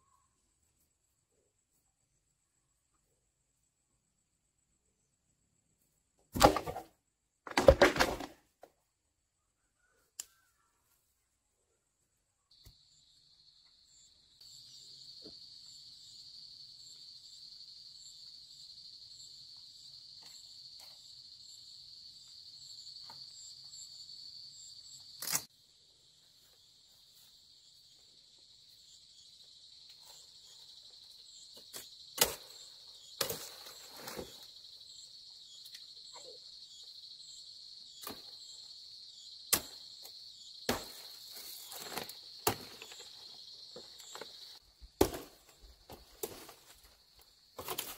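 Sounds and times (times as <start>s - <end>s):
high-pitched insect chorus: 12.5s - 47.9s.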